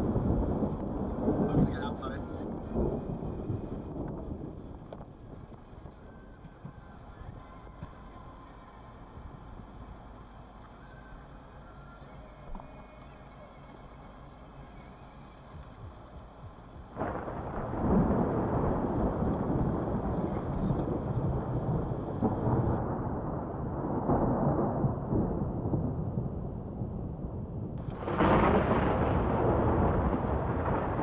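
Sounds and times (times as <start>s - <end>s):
thunder clap and rumble: 0.0s - 8.3s, 14.8s - 31.0s.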